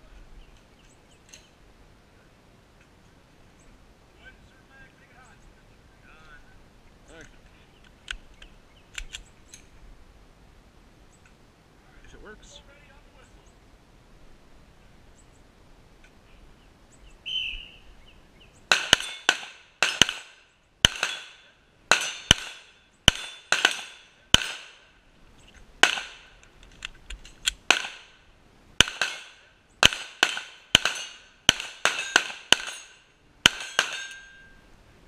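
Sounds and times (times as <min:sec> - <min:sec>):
bullets ringing on steel targets: 0:18.7 - 0:24.9, 0:28.8 - 0:34.6
pistol shots: 0:18.7 - 0:24.9, 0:25.8 - 0:26.4, 0:27.5 - 0:28.2, 0:28.8 - 0:34.2.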